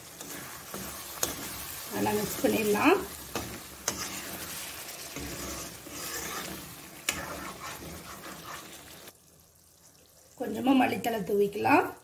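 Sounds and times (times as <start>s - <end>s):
spoon stirring thick curry: 0.0s - 2.5s, 3.1s - 9.1s
curry sizzling and bubbling: 0.0s - 12.0s.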